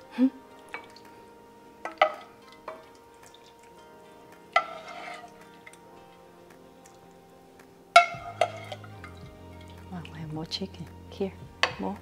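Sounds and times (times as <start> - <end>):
soft background music: 0.0 - 12.0
ladle clinking against pot: 1.8 - 2.9
soup splashing: 1.8 - 10.0.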